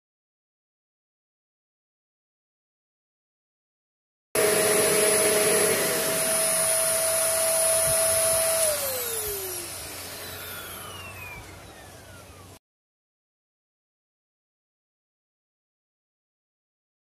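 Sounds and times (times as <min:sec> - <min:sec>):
lower motor tone: 0:04.4 - 0:12.6
vacuum cleaner whining: 0:04.4 - 0:12.6.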